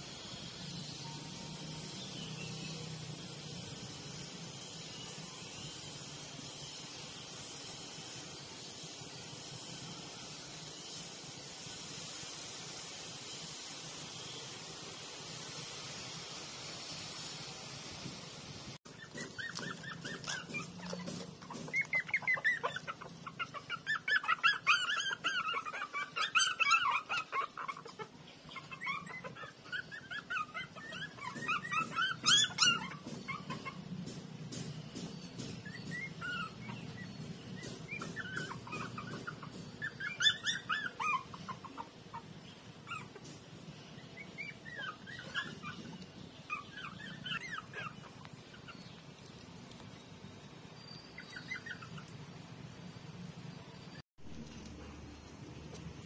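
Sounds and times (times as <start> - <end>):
puppies squealing and whining: 18.9 - 49.2, 50.8 - 52.6.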